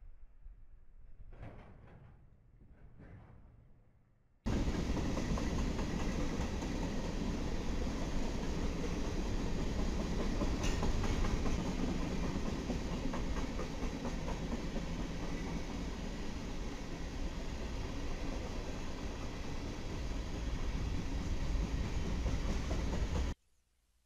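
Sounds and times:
freight train rolling past: 0:04.5 - 0:23.4.

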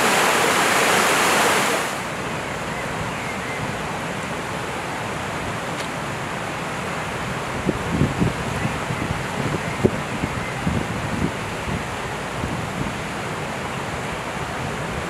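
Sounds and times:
floodwater rushing: 0:00.0 - 0:02.6.

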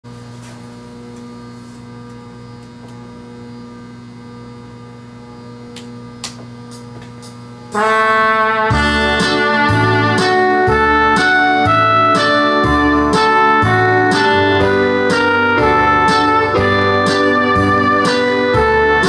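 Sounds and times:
electrical mains hum: 0:00.1 - 0:19.0
karaoke backing track: 0:06.7 - 0:19.0.

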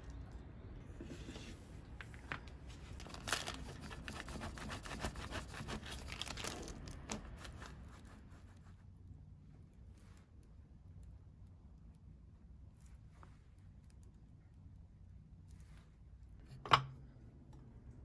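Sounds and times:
plastic bag crinkling and scraping: 0:02.6 - 0:04.2, 0:05.8 - 0:07.8.

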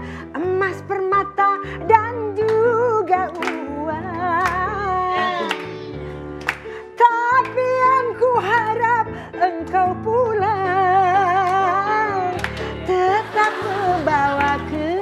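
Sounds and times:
woman singing with vibrato: 0:07.0 - 0:15.0.

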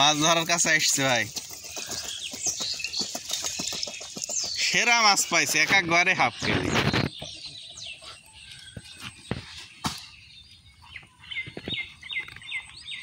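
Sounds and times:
bird chirping: 0:00.0 - 0:13.0.

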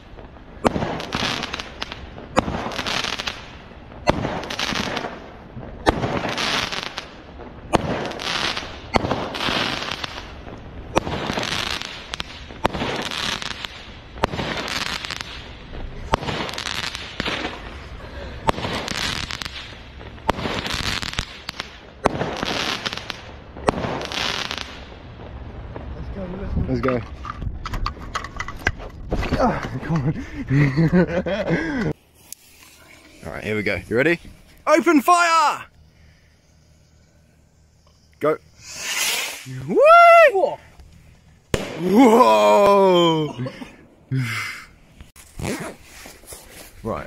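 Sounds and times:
firework shell hissing: 0:00.0 - 0:25.0, 0:31.9 - 0:41.9
firework bangs: 0:00.0 - 0:29.4, 0:32.2 - 0:43.9.

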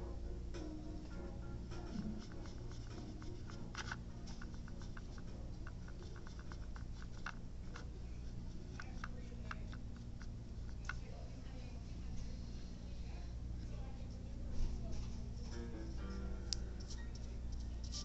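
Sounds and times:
paintbrush ticking on plastic palette: 0:01.8 - 0:11.3.

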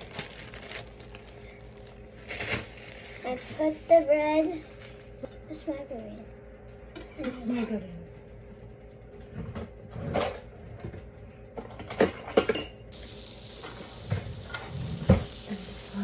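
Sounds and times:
fat sizzling in frying pan: 0:12.9 - 0:16.0.

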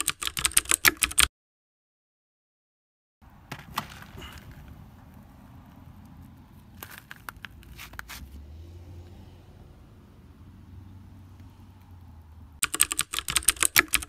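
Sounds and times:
low outdoor rumble: 0:03.2 - 0:12.6.

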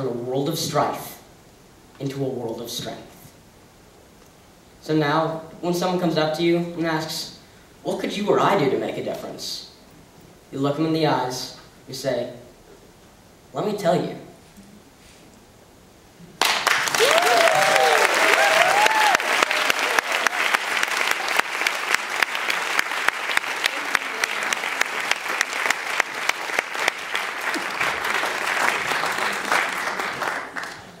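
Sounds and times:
audience applause: 0:16.4 - 0:31.0
crowd whooping: 0:16.8 - 0:31.0.

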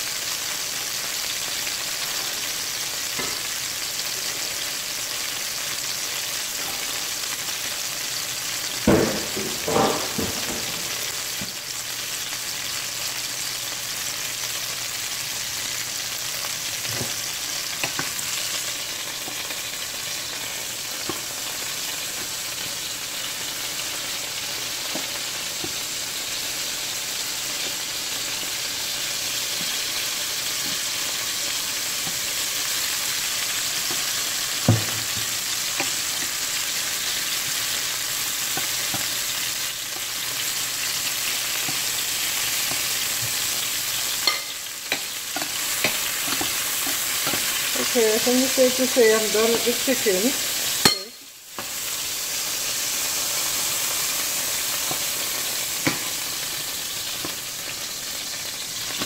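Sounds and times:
chicken sizzling in a pan: 0:00.0 - 0:59.0
tongs clinking on metal: 0:44.2 - 0:47.4, 0:50.8 - 0:51.2.

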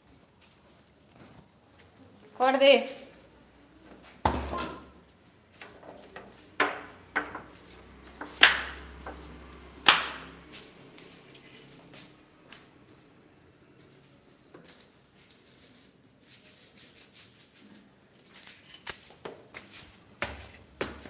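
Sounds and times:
light metallic jingling: 0:00.0 - 0:08.2, 0:08.8 - 0:12.9, 0:17.6 - 0:21.0.

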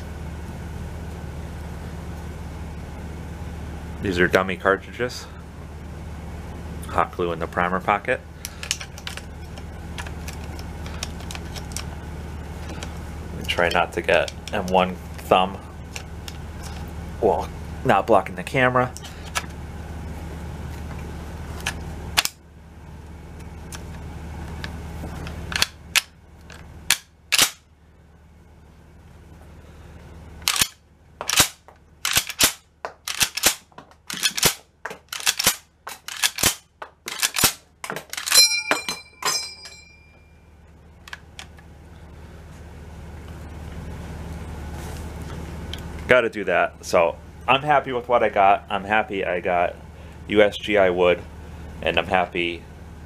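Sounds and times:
rifle action clacks: 0:30.4 - 0:38.4
rifle bolt closing with metallic clack: 0:30.4 - 0:38.4
empty clip ejecting with ringing ping: 0:38.3 - 0:40.2.

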